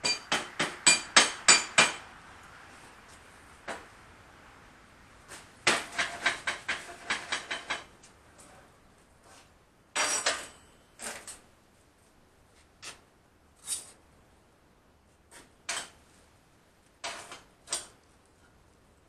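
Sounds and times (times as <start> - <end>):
metal clanking on steel table: 10.0 - 11.4.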